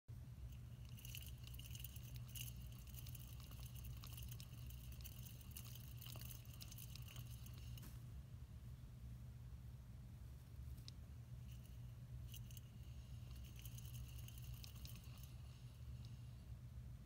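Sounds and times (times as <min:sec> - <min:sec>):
hamster wheel whirring and ticking: 0:00.2 - 0:08.0, 0:10.8 - 0:16.6.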